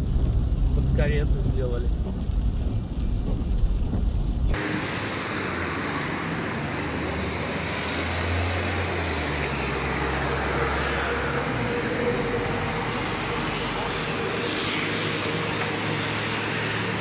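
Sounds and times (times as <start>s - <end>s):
car cabin rumble: 0.0s - 4.6s
road traffic rushing: 0.0s - 17.0s.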